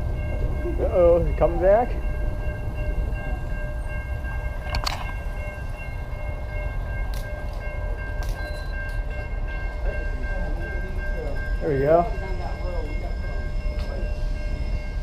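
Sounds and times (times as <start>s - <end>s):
wind and bicycle motion noise: 1.8s - 9.1s.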